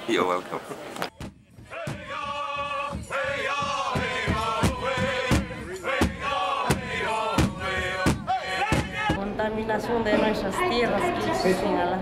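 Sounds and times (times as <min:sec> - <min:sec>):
steady drum beat: 0:01.1 - 0:09.2
voices chanting held notes: 0:01.2 - 0:09.2.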